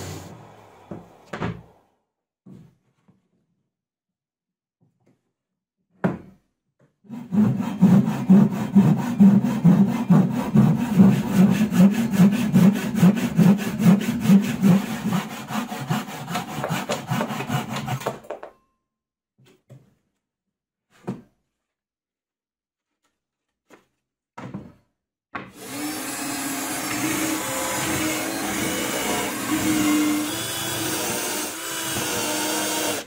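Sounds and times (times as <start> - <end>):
hand saw cutting plywood: 7.1 - 18.2, 25.5 - 33.0.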